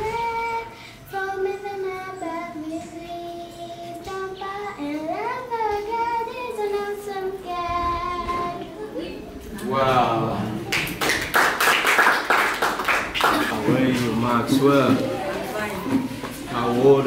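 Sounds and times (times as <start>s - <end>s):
child singing: 0.0s - 9.1s.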